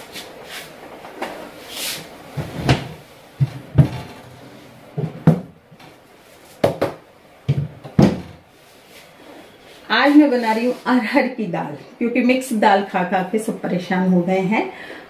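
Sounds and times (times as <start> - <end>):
cabinet door swinging open: 2.4 - 4.3
jars knocking on shelf: 6.6 - 8.4.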